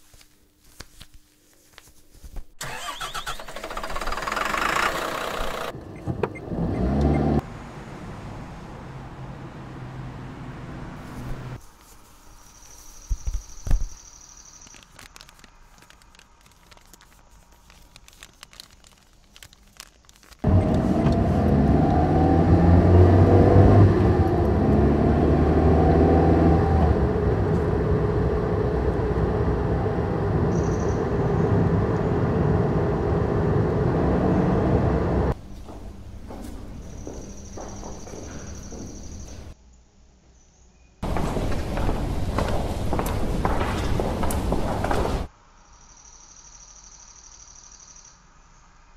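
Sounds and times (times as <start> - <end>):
bus engine droning: 2.6 - 11.6, 20.4 - 39.6, 41.0 - 45.3.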